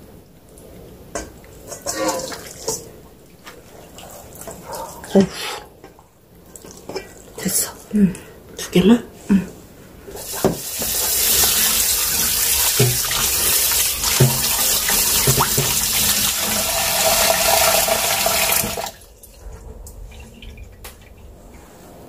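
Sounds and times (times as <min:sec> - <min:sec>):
tap running into a sink: 0:10.2 - 0:18.9.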